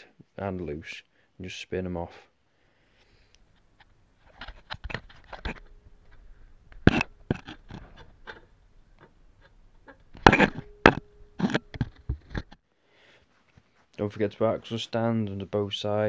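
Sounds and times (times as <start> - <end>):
metal knocks and clanks: 4.4 - 12.6.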